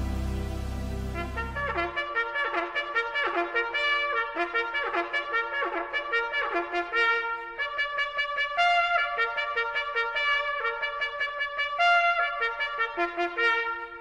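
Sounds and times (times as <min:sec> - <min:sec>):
trumpet-led brass music: 0:00.0 - 0:14.0.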